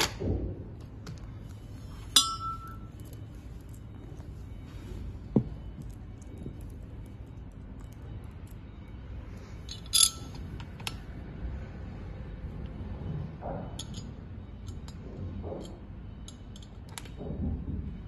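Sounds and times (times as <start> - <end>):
metal parts clinking: 9.6 - 11.0, 13.8 - 15.0.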